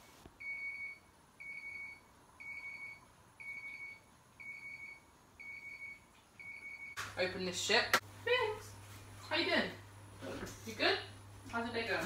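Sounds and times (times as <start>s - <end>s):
electronic alarm beeping: 0.4s - 7.0s.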